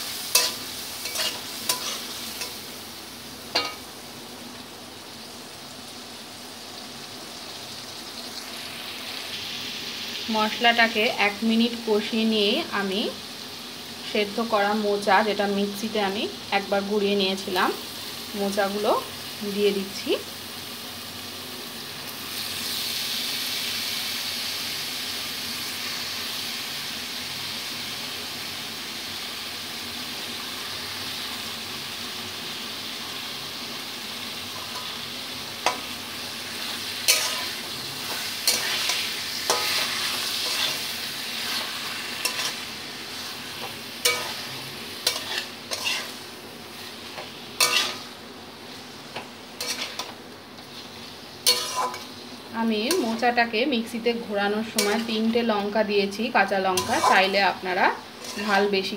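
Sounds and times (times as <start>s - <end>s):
food sizzling in hot oil: 0.0s - 58.9s
metal spatula scraping a wok: 0.1s - 2.6s, 36.5s - 52.2s, 54.7s - 55.3s, 56.6s - 57.5s, 58.1s - 58.8s.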